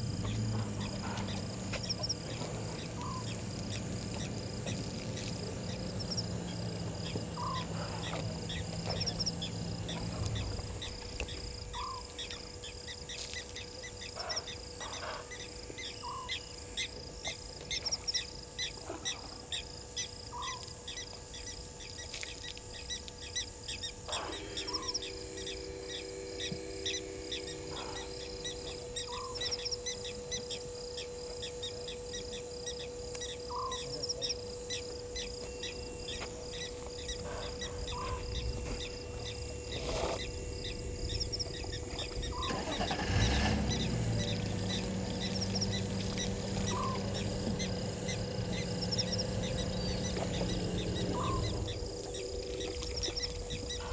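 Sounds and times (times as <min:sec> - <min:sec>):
insects chirping and trilling: 0:00.0 - 0:53.9
camera motor hum: 0:19.5 - 0:53.9.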